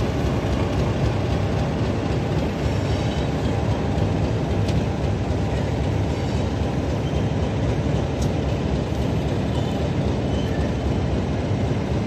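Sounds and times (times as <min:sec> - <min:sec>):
diesel locomotive engine running: 0:00.0 - 0:12.0.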